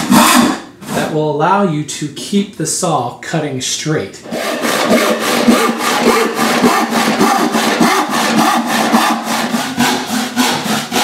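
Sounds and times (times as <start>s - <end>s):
handsaw rasping through wood: 0.0s - 0.6s, 4.2s - 11.0s.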